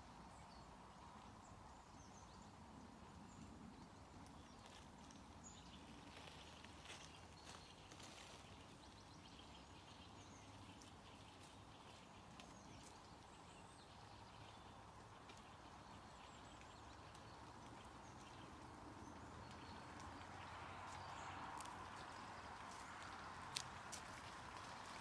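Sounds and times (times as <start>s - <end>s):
deer grazing clicks: 15.1s - 25.0s.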